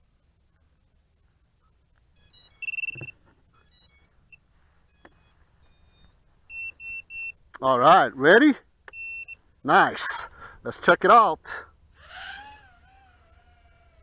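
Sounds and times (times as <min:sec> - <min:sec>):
high beeps: 0:02.2 - 0:04.1, 0:04.9 - 0:07.4, 0:08.9 - 0:09.4.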